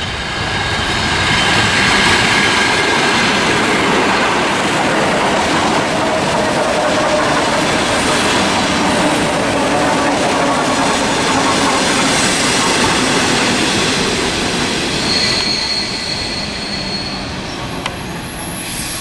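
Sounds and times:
train wheels rumbling on rails: 0:00.0 - 0:19.0
high wheel squeal: 0:06.2 - 0:19.0.

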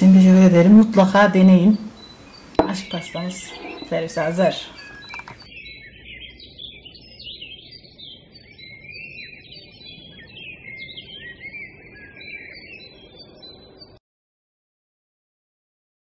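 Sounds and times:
steady low hiss: 0:00.0 - 0:05.5
small birds chirping: 0:00.0 - 0:14.0.

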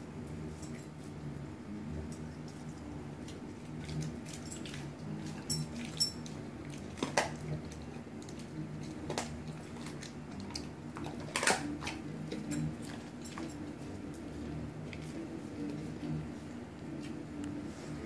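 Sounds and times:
dog chewing wet meat: 0:00.1 - 0:17.8
bone cracking: 0:11.0 - 0:12.0.

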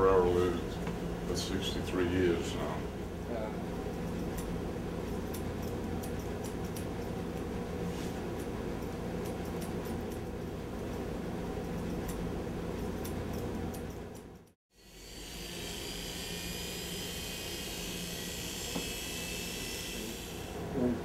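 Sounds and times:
electric hair clippers buzzing: 0:14.8 - 0:20.6.

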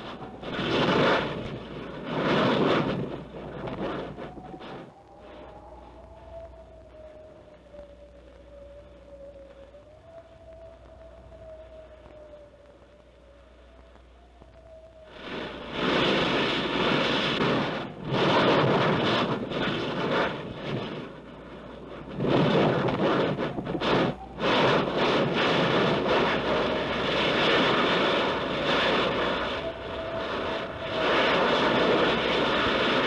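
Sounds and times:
lava fountaining and spattering: 0:00.0 - 0:06.0, 0:15.0 - 0:33.0.

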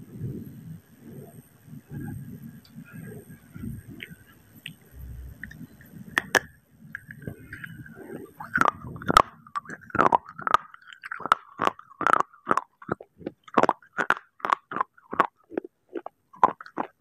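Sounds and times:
chewing brittle clay crunches: 0:05.4 - 0:17.0.

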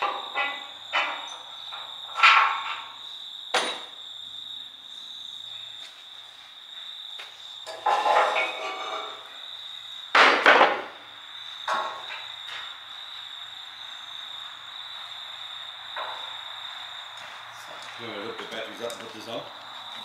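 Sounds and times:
metallic clanking of truck bonnet: 0:00.0 - 0:03.0, 0:07.7 - 0:09.3
cricket trill: 0:00.0 - 0:20.0.

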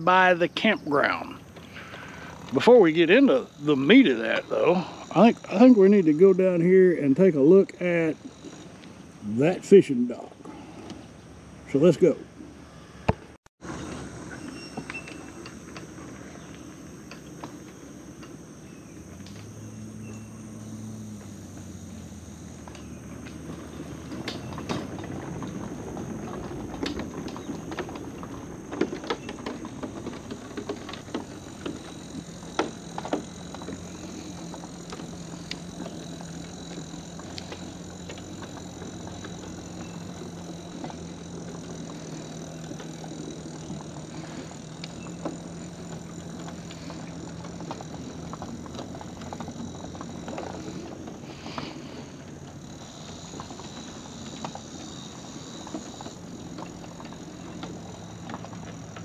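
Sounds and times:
outdoor background noise: 0:00.0 - 0:59.0
footsteps on wooden boards: 0:23.2 - 0:59.0.

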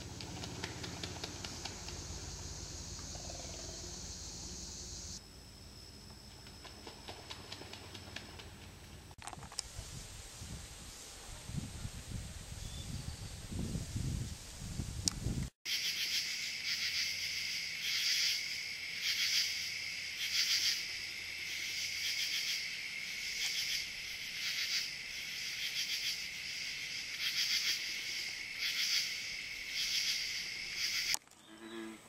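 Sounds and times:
crickets and katydids trilling: 0:00.6 - 0:08.4, 0:15.7 - 0:31.7.

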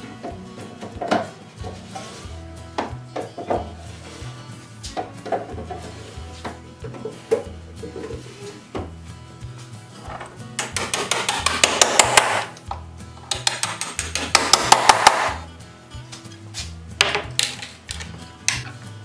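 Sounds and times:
background music: 0:00.0 - 0:19.0
hammer tapping on wood: 0:10.6 - 0:12.5, 0:13.2 - 0:15.4.

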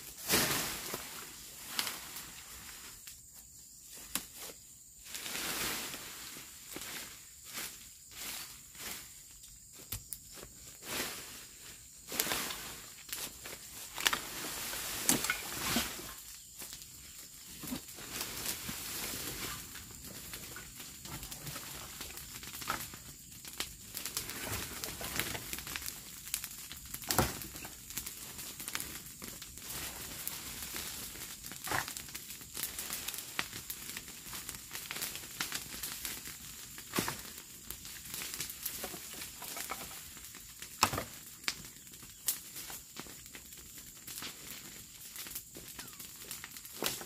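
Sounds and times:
wood and debris rustling: 0:09.8 - 0:47.0.

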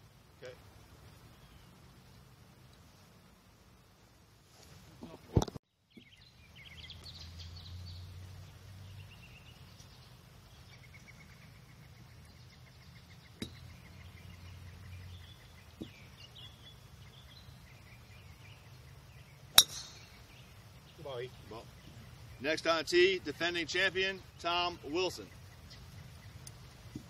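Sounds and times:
birds chirping: 0:00.4 - 0:02.4, 0:05.7 - 0:27.0
golf club striking ball: 0:13.4 - 0:13.7, 0:19.5 - 0:20.4.

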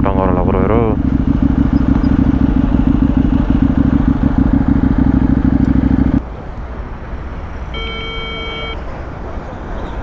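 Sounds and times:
motorcycle engine idling: 0:00.0 - 0:06.2.

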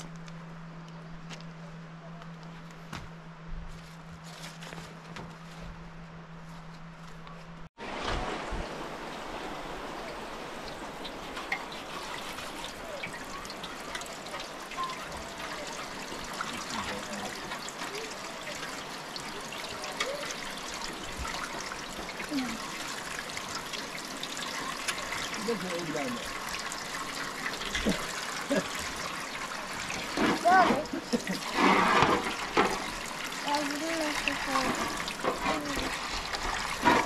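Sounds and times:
water trickling into metal basin: 0:09.0 - 0:37.0.

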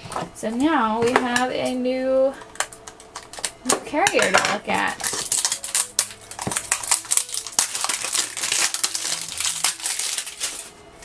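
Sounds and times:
plastic film crinkling: 0:02.4 - 0:11.0.

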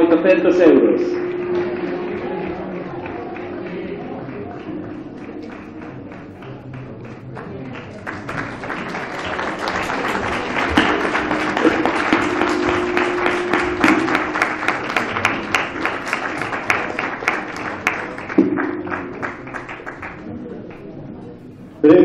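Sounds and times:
audience applause: 0:01.1 - 0:20.9.

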